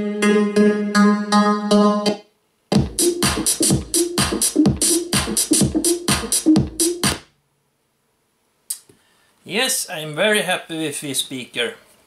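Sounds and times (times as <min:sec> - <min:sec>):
music through a speaker: 0:00.0 - 0:07.3
fast beat with repeating bass note: 0:02.7 - 0:07.2.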